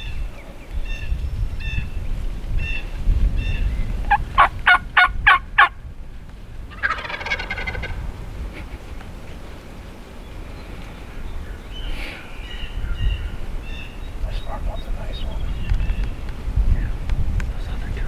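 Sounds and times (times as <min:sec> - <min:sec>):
turkey gobbling: 0:04.1 - 0:05.7, 0:06.7 - 0:08.0.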